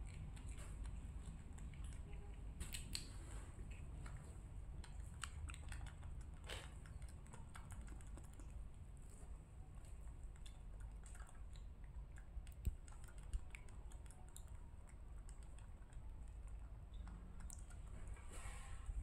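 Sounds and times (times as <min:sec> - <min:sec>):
monkey chewing crisps: 0:00.0 - 0:18.2.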